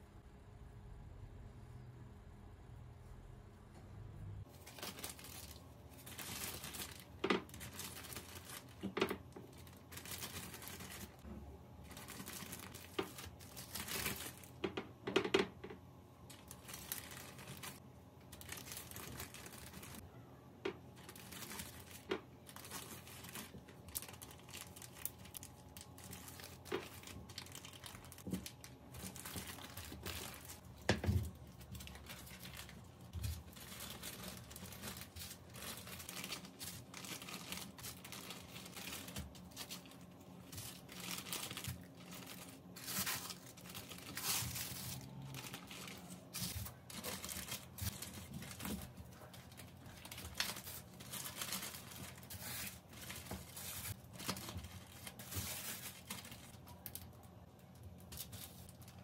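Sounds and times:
plastic bags crinkling: 4.4 - 20.0, 20.7 - 59.0.

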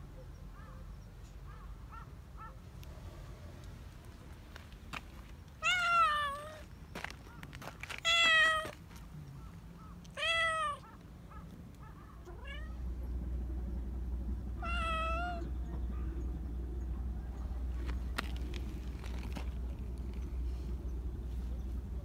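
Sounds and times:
cat meowing: 5.6 - 6.6, 8.0 - 8.7, 10.1 - 10.9, 12.2 - 12.8, 14.6 - 15.5.

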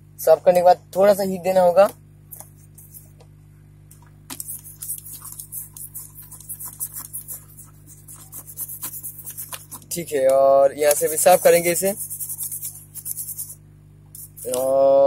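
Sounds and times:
scratchy scrubbing strokes: 4.4 - 10.0, 10.9 - 13.6.

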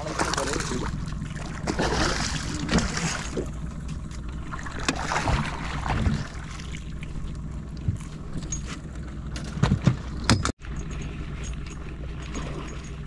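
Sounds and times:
fish thrashing water splashing: 0.0 - 8.4
boat motor humming: 0.0 - 13.0.

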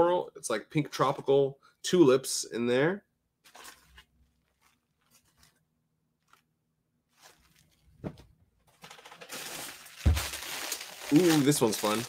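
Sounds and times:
plastic bag crinkling: 3.4 - 5.6, 6.2 - 6.5, 7.1 - 8.0, 8.7 - 12.0
handling folded fabric: 3.4 - 8.4.

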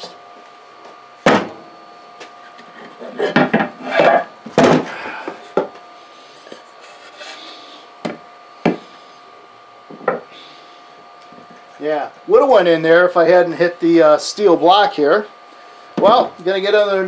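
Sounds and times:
wood scraping on wood: 6.4 - 7.7.

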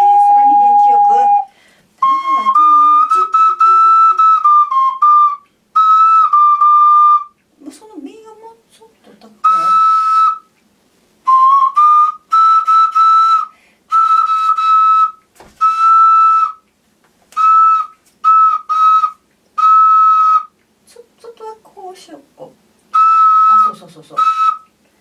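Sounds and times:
ocarina detached notes: 11.3 - 20.7.

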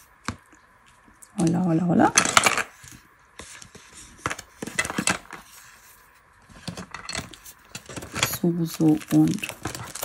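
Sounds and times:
plastic and metal items clattering: 1.4 - 2.8, 4.2 - 5.5, 6.5 - 10.0.

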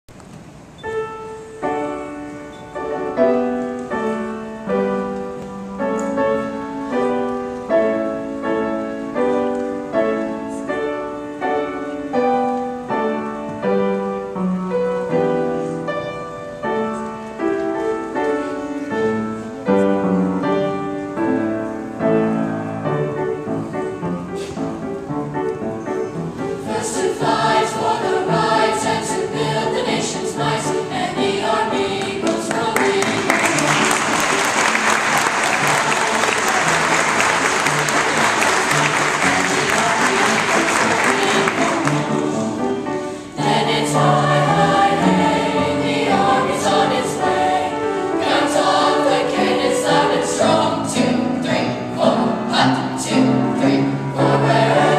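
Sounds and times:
piano notes: 0.1 - 54.9
youth choir singing: 26.4 - 54.9.

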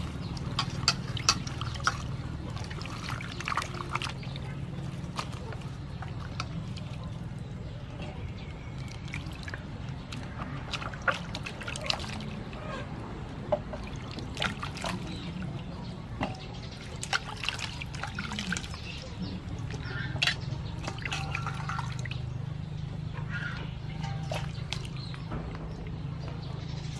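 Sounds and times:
hands splashing in bowl of water: 0.0 - 7.2, 8.7 - 12.6, 13.7 - 15.6, 16.6 - 22.3, 24.0 - 25.3
water dripping and trickling: 0.0 - 26.9.

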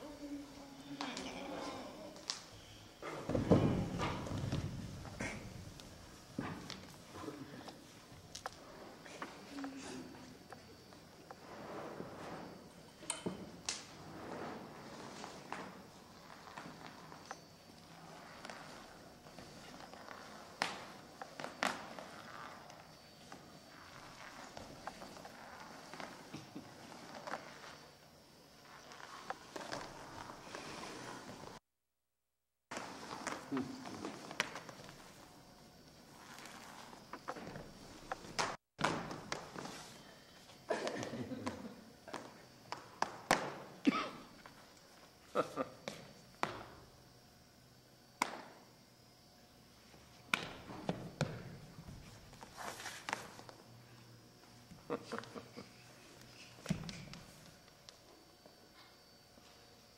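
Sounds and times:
faint room hiss: 0.0 - 31.6.

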